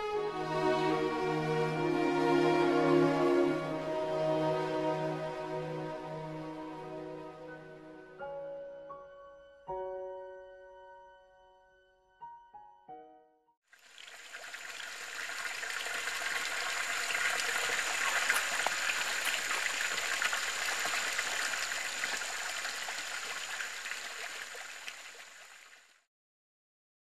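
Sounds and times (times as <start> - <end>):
water splashing into pool: 13.8 - 26.0.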